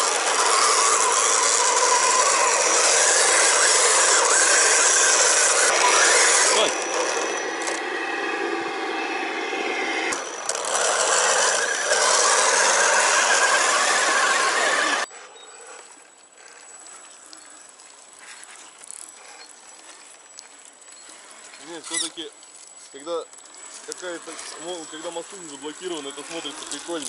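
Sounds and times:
toy truck electric motor whine: 0.0 - 15.7, 23.0 - 27.0
tyres churning wet mud: 10.4 - 15.1.

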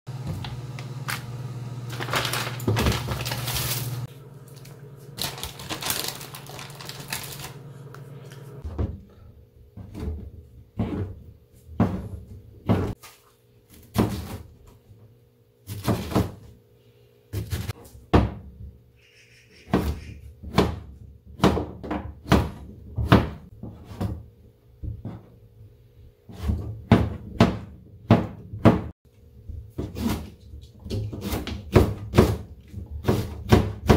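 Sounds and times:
steady low hum: 0.1 - 12.6
knife chopping on plastic board: 19.7 - 24.1, 29.8 - 33.9.

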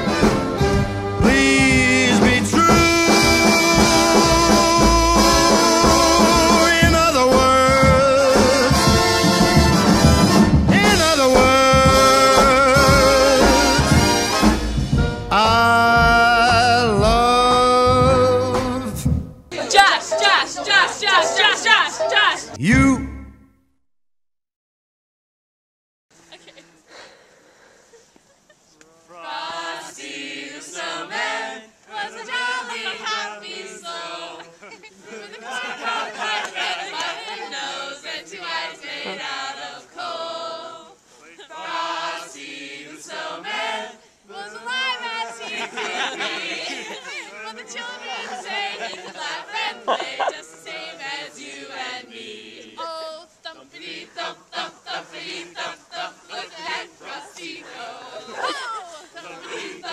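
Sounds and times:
group singing unaccompanied: 0.0 - 22.5, 29.1 - 59.9
voice holding a high note: 22.6 - 23.5
young people chanting: 29.1 - 59.9.

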